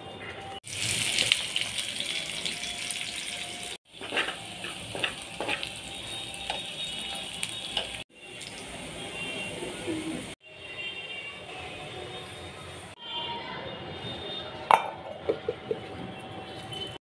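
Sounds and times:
oil popping and crackling: 0.6s - 3.2s
food sizzling in hot oil: 0.6s - 10.4s.

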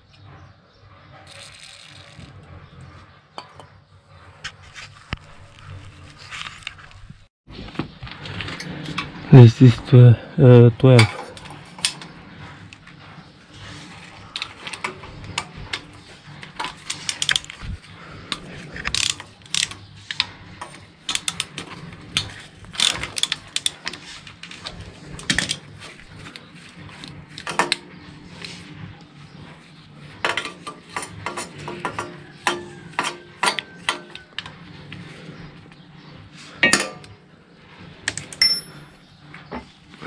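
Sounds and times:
sharp metal clinks: 38.4s - 39.0s.

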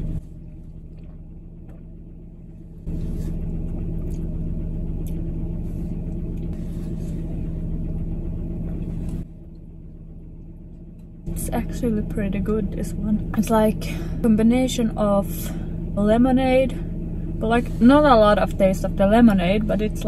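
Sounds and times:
low rumble and hum inside car: 0.0s - 20.0s.

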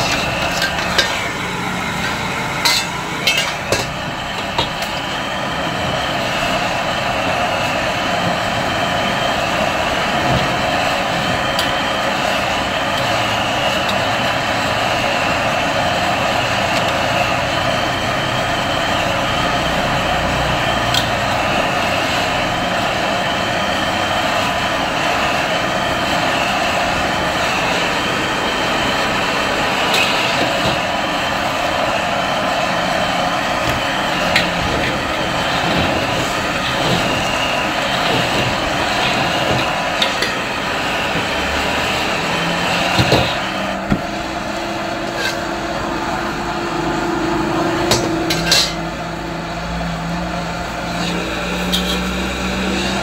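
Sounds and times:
metal spatula scraping a wok: 0.0s - 3.9s, 45.0s - 45.5s, 47.9s - 48.8s, 51.0s - 53.0s
gas burner roaring: 0.0s - 53.0s.

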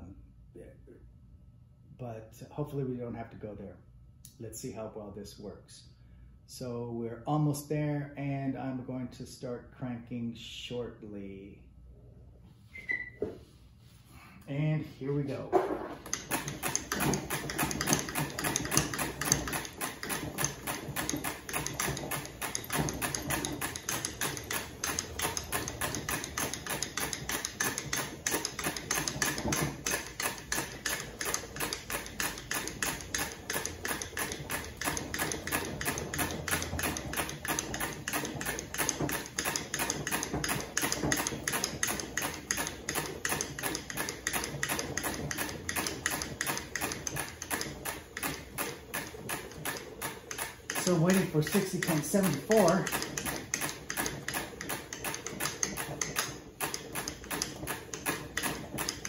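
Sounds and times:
hand crank mechanical clicks: 16.0s - 59.0s.

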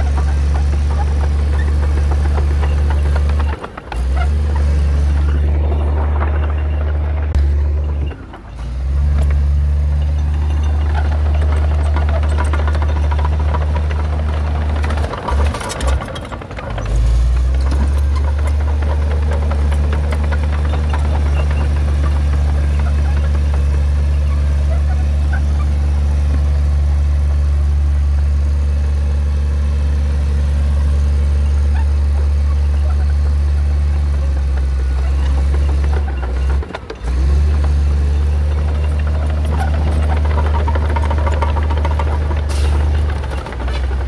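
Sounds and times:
diesel engine droning under load: 0.0s - 44.0s.

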